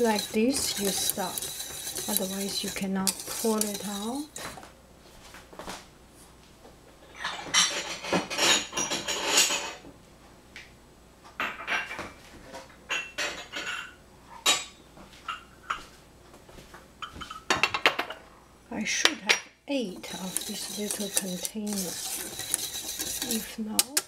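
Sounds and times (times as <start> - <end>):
kitchenware clinking and clattering: 0.0 - 4.6, 7.0 - 9.8, 11.4 - 15.9, 17.0 - 18.2, 19.0 - 24.0.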